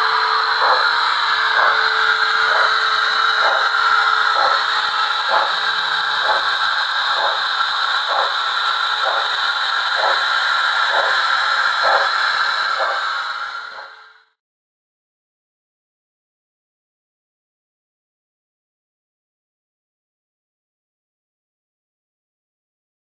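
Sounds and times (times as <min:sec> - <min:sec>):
steady hum: 0:00.0 - 0:14.2
steady steam hiss: 0:00.0 - 0:14.2
model steam locomotive chuffing: 0:00.0 - 0:14.4.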